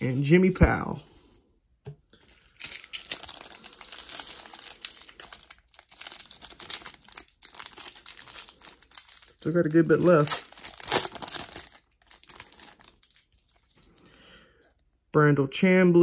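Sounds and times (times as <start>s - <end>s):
plastic wrapper crinkling and tearing: 2.1s - 14.0s.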